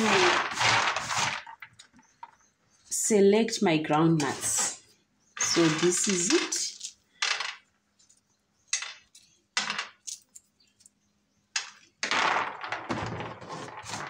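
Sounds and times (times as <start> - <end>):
nuts rattling on a metal tray: 0.0 - 2.4, 5.4 - 7.7, 8.7 - 10.4, 11.6 - 14.0.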